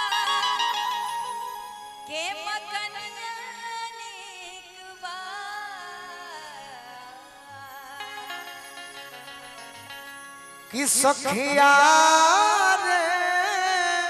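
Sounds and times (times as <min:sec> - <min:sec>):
person singing: 0:10.7 - 0:14.0.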